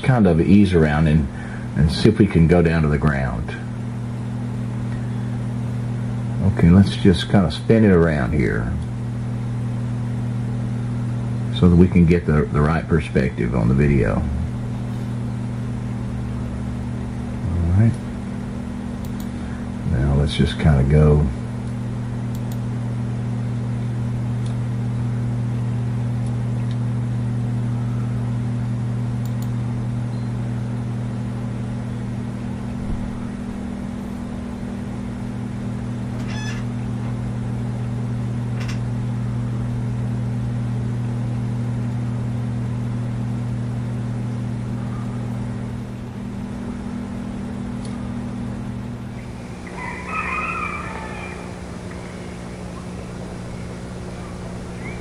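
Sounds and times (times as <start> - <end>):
steady low hum: 0.0 - 55.0
faint clicks: 19.0 - 19.4, 21.6 - 22.6
even hiss: 49.2 - 55.0.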